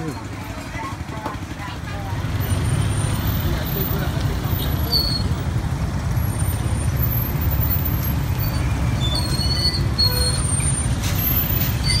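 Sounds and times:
motorbike engine rumble: 0.0 - 12.0
faint high squeaks: 8.4 - 12.0.

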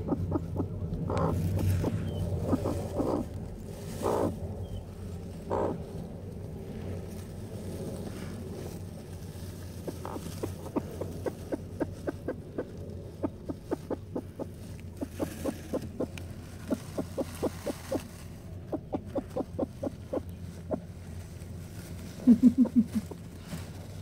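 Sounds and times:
hen clucking: 0.0 - 4.8, 5.4 - 5.8, 9.8 - 20.9.

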